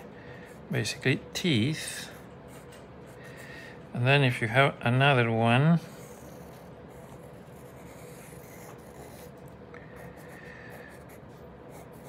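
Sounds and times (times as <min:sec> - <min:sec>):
faint steady hum: 0:00.0 - 0:12.0
pencil scratching on paper: 0:05.8 - 0:09.4, 0:10.0 - 0:12.0.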